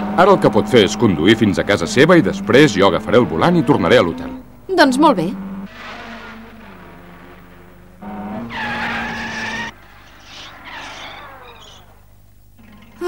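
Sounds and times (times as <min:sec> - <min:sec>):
car engine running: 0:00.0 - 0:13.0
tyres screeching: 0:00.0 - 0:13.0.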